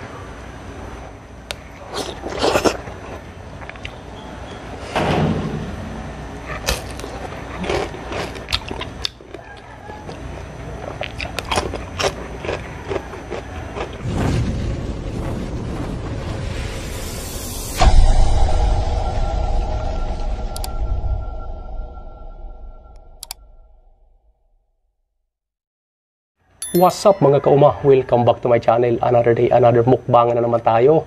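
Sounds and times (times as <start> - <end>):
crunching and chewing food: 1.5 - 4.2, 6.4 - 14.5.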